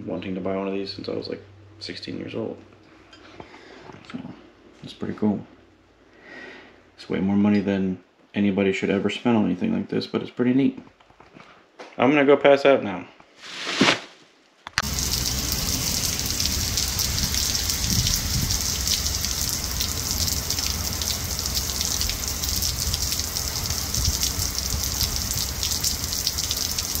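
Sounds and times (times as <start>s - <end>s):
steady rain: 14.8s - 27.0s.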